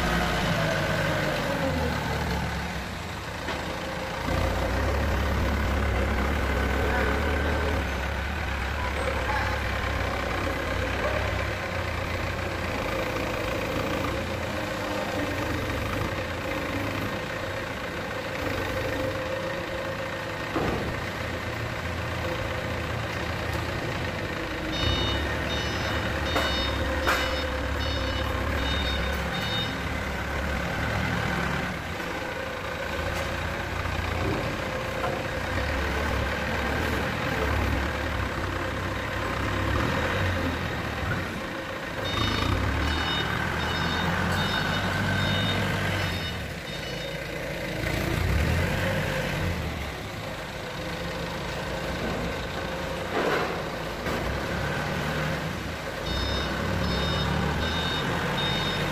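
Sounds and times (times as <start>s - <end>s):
forklift engine running: 0.0s - 58.9s
reversing alarm beeping: 24.7s - 29.9s, 42.0s - 47.3s, 56.0s - 58.9s.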